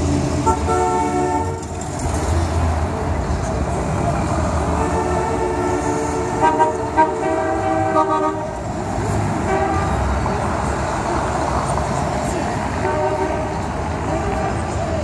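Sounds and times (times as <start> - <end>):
passing cars rumbling: 0.0 - 15.0
street noise: 0.0 - 15.0
car horns honking: 0.4 - 1.8, 4.7 - 8.6, 9.4 - 10.1, 12.8 - 14.8.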